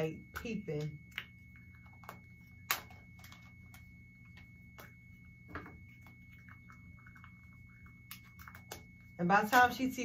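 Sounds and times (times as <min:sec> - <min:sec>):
faint steady hum: 0:00.0 - 0:10.0
plastic clicks and crinkles: 0:00.4 - 0:07.2.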